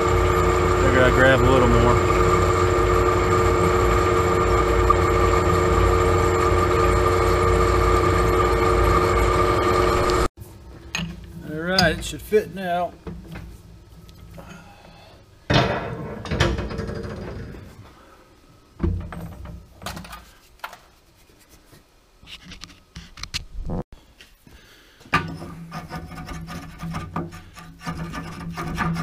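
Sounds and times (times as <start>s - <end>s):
metal scraping and rubbing: 25.3s - 29.0s.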